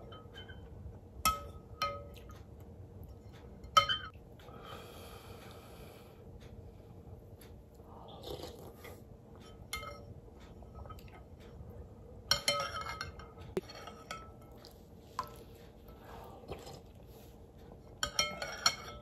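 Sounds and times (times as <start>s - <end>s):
metal spoon clinking on glass bowl: 3.6s - 4.1s, 12.3s - 14.6s, 18.0s - 19.0s.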